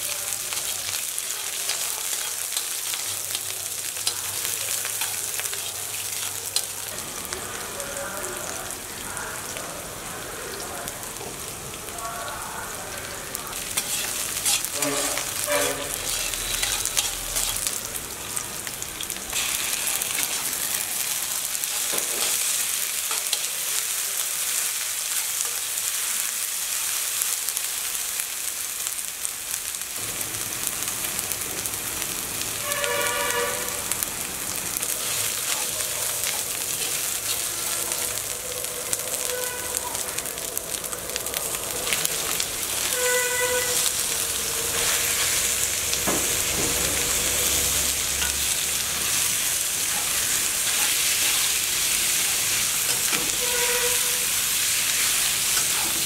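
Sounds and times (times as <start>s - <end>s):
food sizzling in hot oil: 0.0s - 56.0s
metal spatula stirring: 0.5s - 6.8s, 13.5s - 17.8s, 41.8s - 45.6s, 46.9s - 56.0s.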